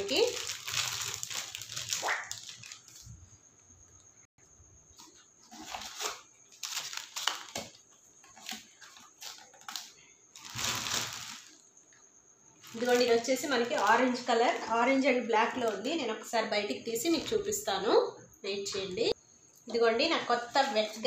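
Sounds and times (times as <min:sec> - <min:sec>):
plastic wrap and cardboard rustling: 0:00.0 - 0:03.3, 0:05.0 - 0:11.6, 0:12.6 - 0:15.8.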